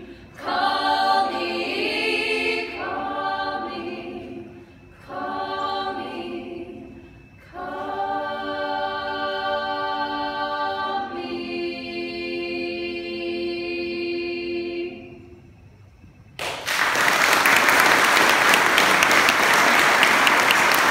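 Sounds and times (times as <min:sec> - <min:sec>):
women's choir singing: 0:00.0 - 0:15.5
audience applause: 0:16.4 - 0:20.9.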